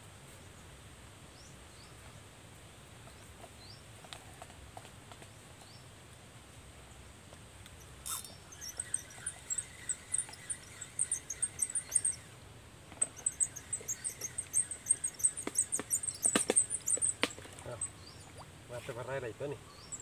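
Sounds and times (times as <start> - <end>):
fishing reel squeaky clicks: 7.7 - 12.4, 13.0 - 18.5, 19.8 - 20.0.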